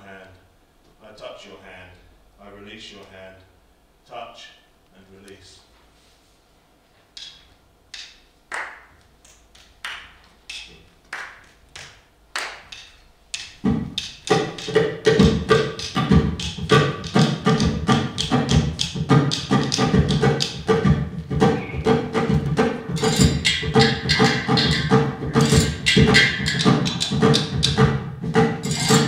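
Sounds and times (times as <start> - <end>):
fast dense drum rhythm: 13.6 - 29.0
ringing percussion hits: 14.2 - 29.0.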